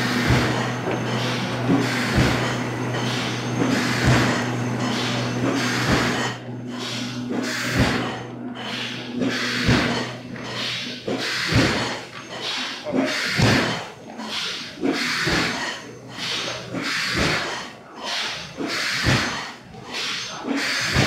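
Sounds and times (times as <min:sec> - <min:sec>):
extrusion machinery running: 0:00.0 - 0:21.0.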